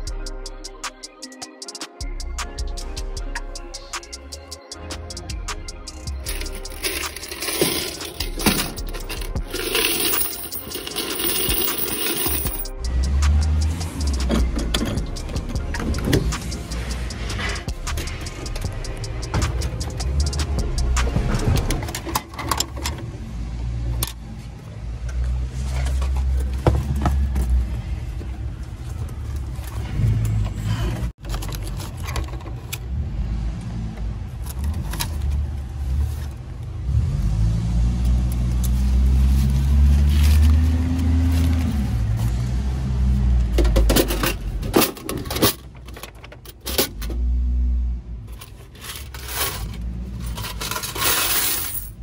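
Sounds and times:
keys jangling: 6.1 - 12.7, 48.8 - 52.0.

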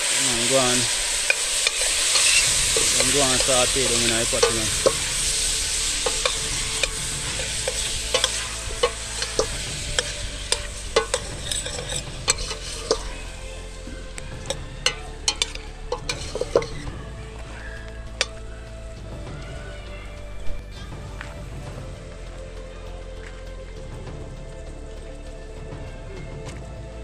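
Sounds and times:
food sizzling in a pot: 0.0 - 19.0
metal spoon scraping a pot: 0.5 - 16.9.

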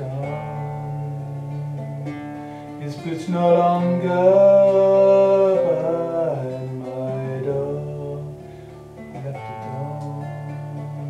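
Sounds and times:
classical guitar: 0.0 - 11.0.

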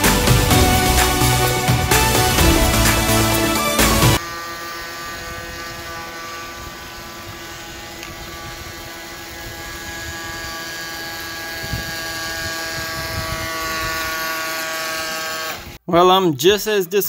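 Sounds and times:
small electric motor whine: 4.2 - 15.8.

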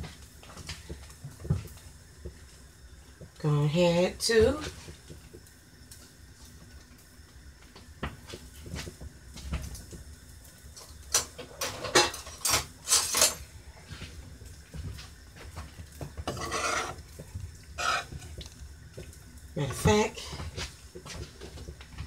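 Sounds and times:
pans and utensils clattering: 10.8 - 13.5, 15.6 - 18.4.

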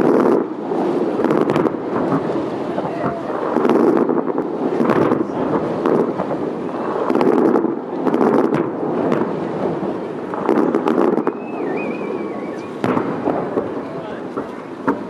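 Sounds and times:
fireworks booming and crackling: 0.0 - 15.0
thin wavering whistle: 11.2 - 12.8.

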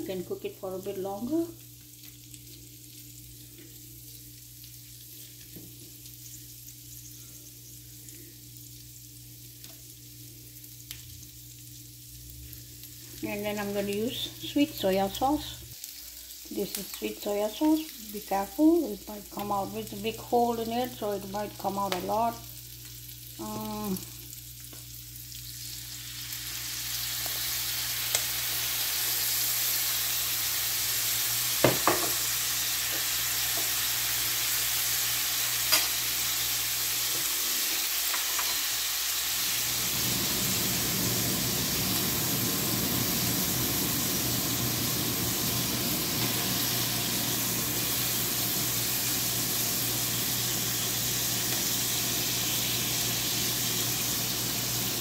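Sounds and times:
eggs sizzling on a hot pan: 0.0 - 55.0.

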